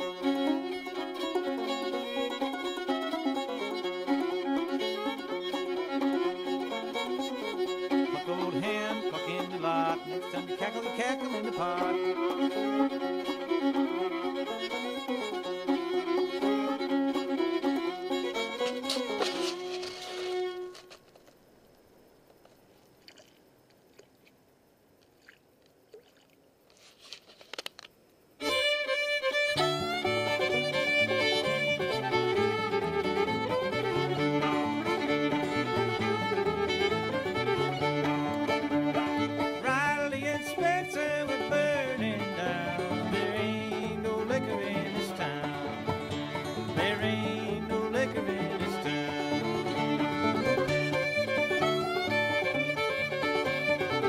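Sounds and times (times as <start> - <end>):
banjo: 0.0 - 20.8, 29.4 - 54.0
fiddle with sliding notes: 0.0 - 21.0, 28.4 - 54.0
guitar: 0.0 - 21.4, 28.4 - 54.0
faint clicks and rustles: 18.6 - 28.2.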